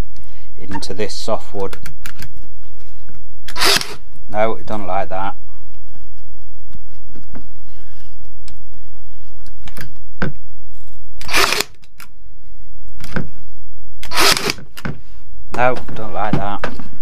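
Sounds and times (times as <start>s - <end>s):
nail gun firing: 3.5s - 4.0s, 11.2s - 11.8s, 14.0s - 14.6s.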